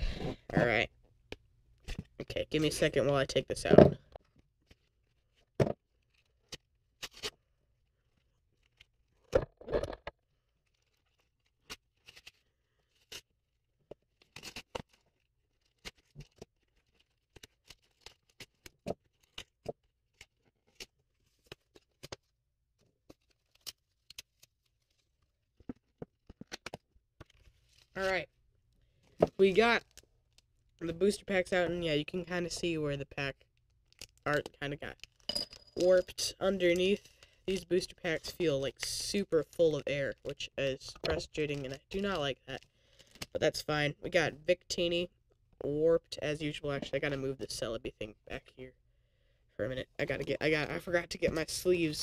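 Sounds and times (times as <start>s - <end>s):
blister pack tearing and crinkling: 6.0s - 7.4s, 14.1s - 22.3s, 33.6s - 34.2s.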